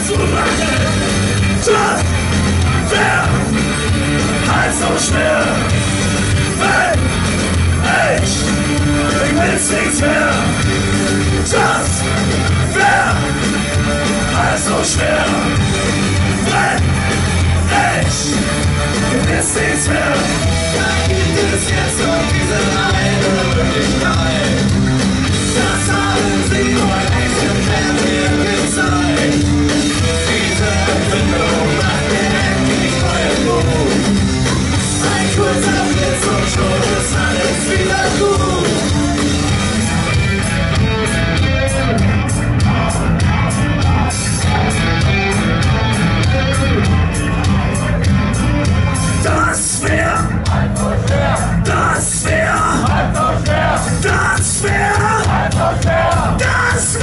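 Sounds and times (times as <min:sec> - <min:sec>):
bass: 0:00.0 - 0:57.0
drums: 0:00.0 - 0:57.0
electric guitars: 0:00.0 - 0:57.0
person singing: 0:19.1 - 0:24.7, 0:25.4 - 0:34.2, 0:34.8 - 0:39.2.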